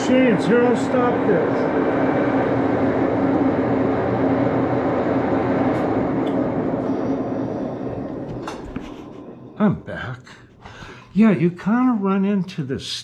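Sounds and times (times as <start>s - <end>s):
lathe mechanical hum: 0.0s - 9.8s.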